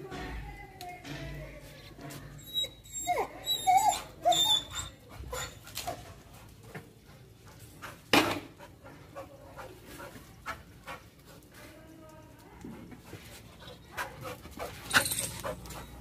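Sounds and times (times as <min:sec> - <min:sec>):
dog whining: 0:02.4 - 0:05.6.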